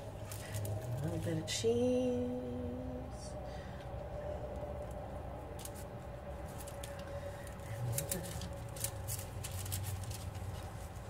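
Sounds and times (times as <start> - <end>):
paper and foil crinkling: 0.0 - 1.6, 4.8 - 11.0
steady low hum: 0.0 - 11.0.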